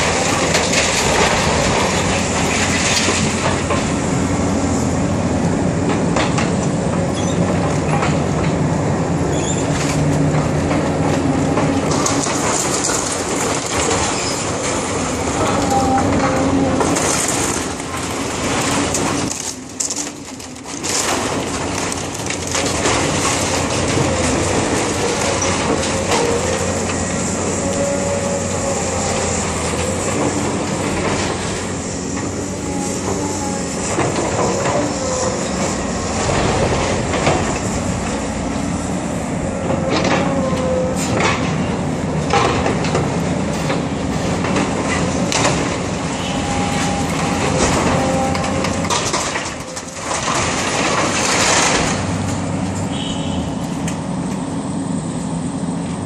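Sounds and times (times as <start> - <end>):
crunching wood and sheet metal: 0.0 - 4.8, 9.3 - 54.5
excavator running under load: 0.0 - 56.0
metal squealing: 9.3 - 9.8, 46.1 - 50.0
debris crashing: 11.7 - 32.3, 44.3 - 52.4.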